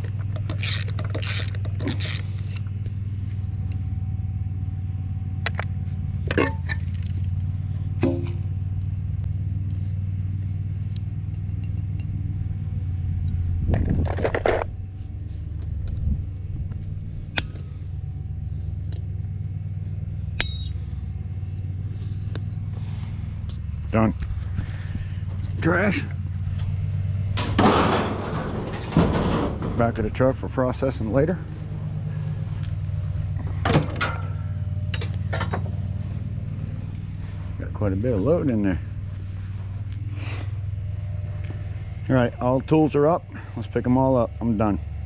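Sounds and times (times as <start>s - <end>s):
engine idling: 0.0s - 45.0s
metal tools clinking: 20.4s - 20.8s, 34.9s - 35.6s.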